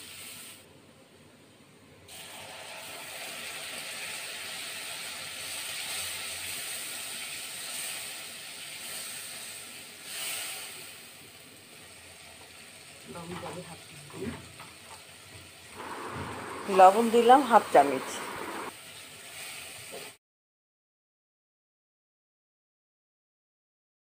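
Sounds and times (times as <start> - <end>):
spice paste sizzling in hot oil: 0.0 - 0.7, 2.1 - 20.2.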